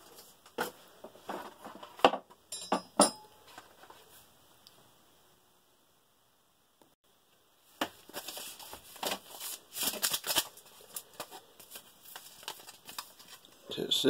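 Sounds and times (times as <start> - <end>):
plastic packets crinkling: 8.0 - 13.6.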